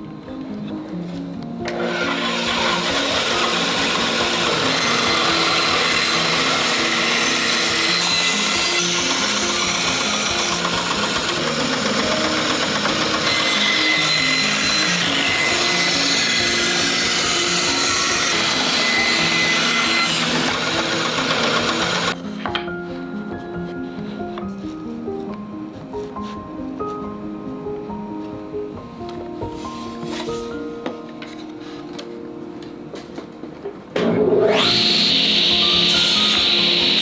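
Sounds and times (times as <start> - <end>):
band saw cutting wood: 1.7 - 22.2, 34.2 - 37.0.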